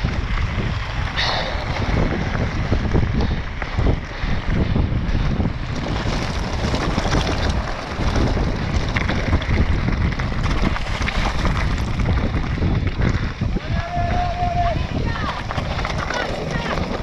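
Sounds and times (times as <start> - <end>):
wind buffeting microphone: 0.0 - 17.0
tyres crunching on gravel: 5.3 - 17.0.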